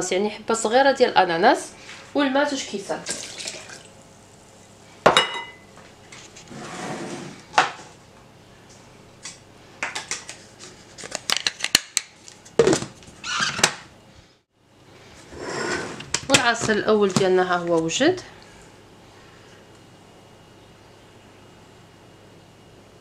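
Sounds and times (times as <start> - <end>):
liquid pouring: 3.1 - 4.0
glass clinking against jug: 5.1 - 5.6.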